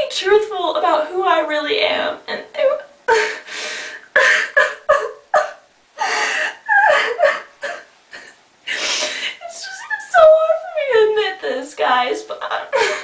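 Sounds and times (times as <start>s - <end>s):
woman sobbing: 2.6s - 11.2s, 12.6s - 13.0s.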